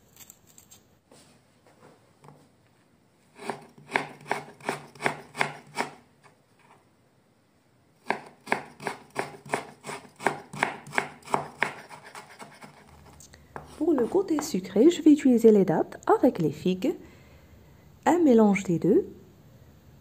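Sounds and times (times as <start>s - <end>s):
knife chopping on wooden board: 3.4s - 6.0s, 8.0s - 14.6s.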